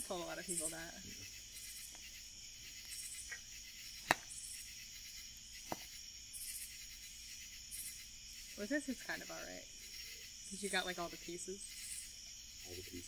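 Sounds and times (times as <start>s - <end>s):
fire popping: 0.0s - 13.0s
high insect drone: 0.0s - 13.0s
insects chirping: 0.0s - 13.0s
wood fire crackling: 0.0s - 13.0s.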